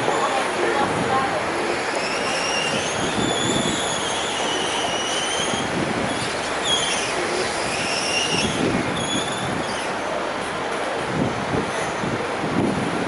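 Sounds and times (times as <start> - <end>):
city traffic: 0.0 - 13.0.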